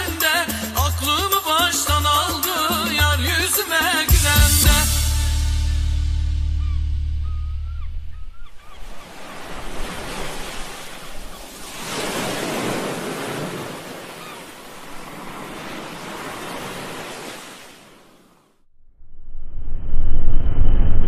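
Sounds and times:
wind over open water: 8.0 - 21.0
rushing waves: 8.4 - 18.6.

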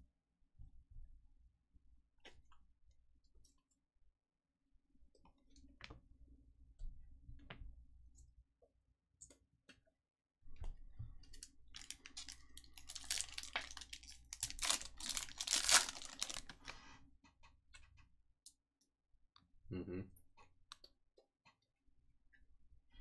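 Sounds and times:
foil wrapper crinkling: 11.4 - 16.8.

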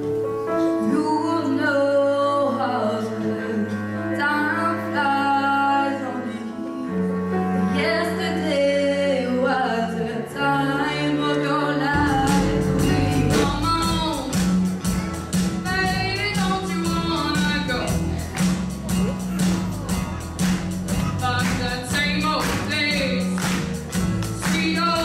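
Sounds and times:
drum kit steady beat: 12.0 - 25.0.

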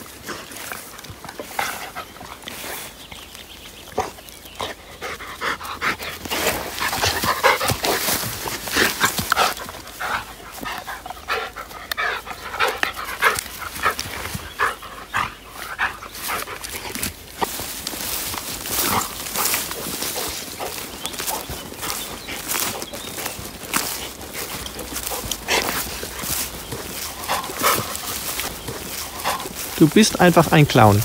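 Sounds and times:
dog panting: 0.1 - 3.1, 3.9 - 31.0.

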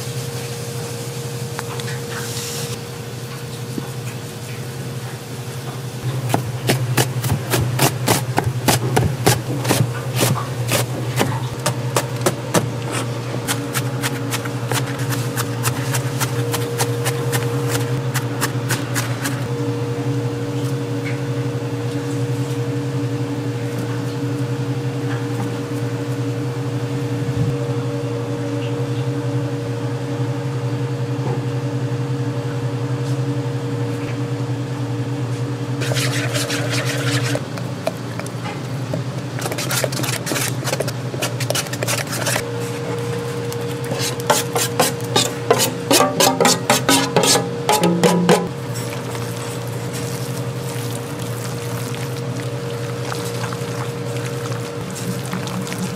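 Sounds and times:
low hum of kitchen equipment: 0.0 - 55.9
sharp knocks of kitchen prep: 44.4 - 48.5.

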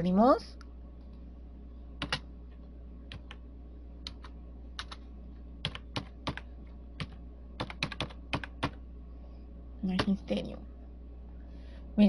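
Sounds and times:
steady low hum: 0.0 - 12.0
keyboard typing: 2.0 - 2.2, 3.1 - 3.4, 4.0 - 5.0, 5.6 - 8.8.

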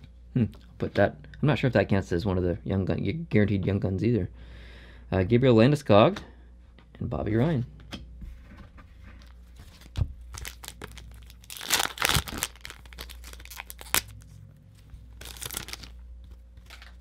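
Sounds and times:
card pack wrapper crinkling: 9.6 - 14.2, 15.0 - 17.0.

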